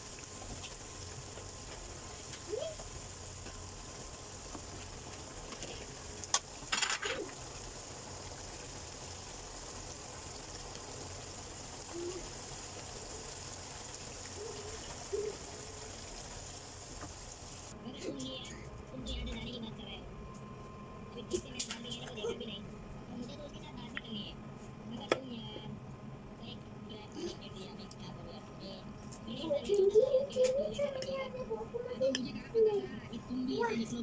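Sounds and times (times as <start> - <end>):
curry simmering in a wok: 0.0 - 17.8.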